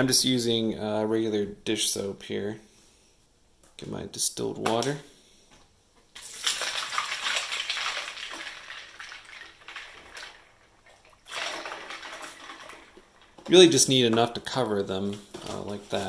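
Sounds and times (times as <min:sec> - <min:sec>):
water pouring into a bowl: 0:06.2 - 0:13.3.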